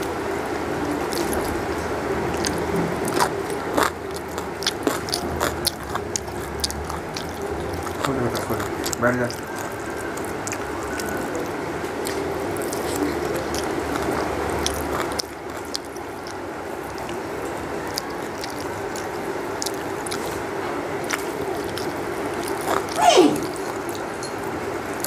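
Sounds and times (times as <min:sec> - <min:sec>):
steady background hum: 0:00.0 - 0:25.0
short loud cry: 0:23.0 - 0:23.6.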